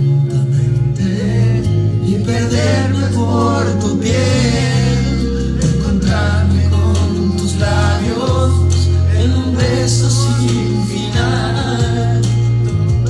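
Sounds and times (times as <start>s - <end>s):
held bass notes: 0.0s - 13.0s
singing voice: 0.0s - 13.0s.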